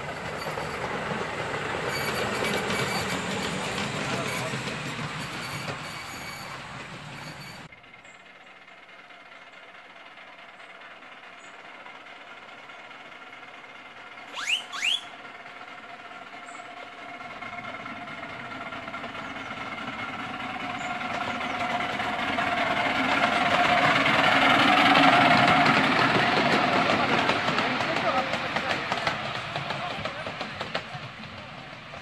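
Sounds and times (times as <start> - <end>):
miniature train running: 0.0 - 32.0
train whistle toots: 14.3 - 15.2.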